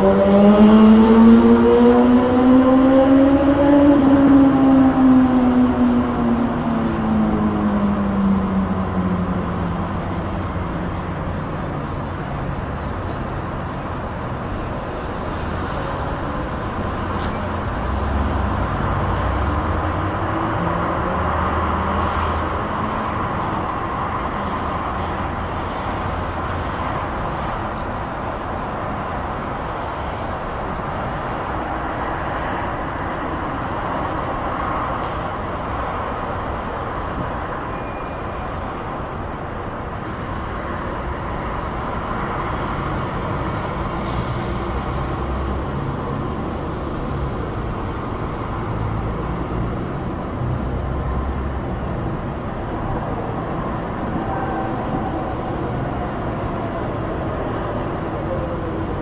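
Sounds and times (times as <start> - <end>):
distant motorway traffic: 0.0 - 59.0.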